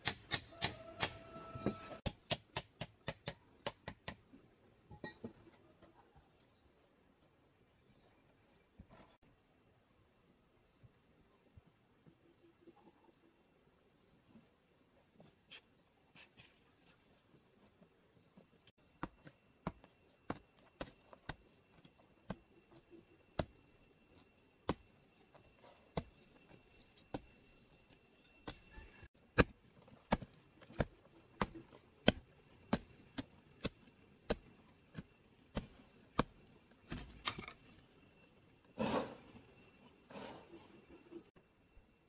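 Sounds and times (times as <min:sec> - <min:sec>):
hoe striking packed earth: 0:28.4 - 0:37.8, 0:38.8 - 0:39.4.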